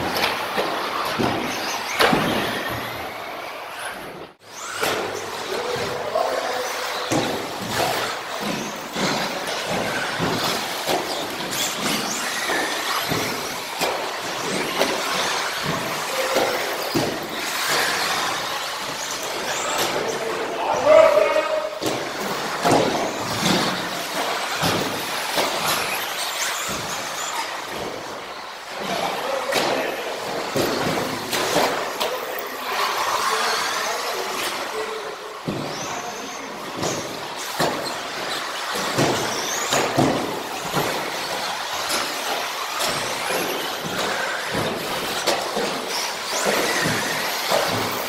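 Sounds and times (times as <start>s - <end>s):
knocks from toy cars: 0.0s - 3.0s, 6.7s - 20.2s, 21.7s - 32.3s, 35.4s - 48.0s
rc car motors whining: 0.0s - 48.0s
model cars knocking: 36.8s - 48.0s.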